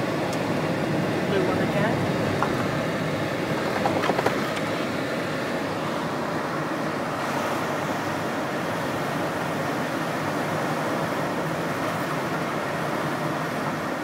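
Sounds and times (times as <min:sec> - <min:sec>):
car engine and tyre noise: 0:00.0 - 0:14.0.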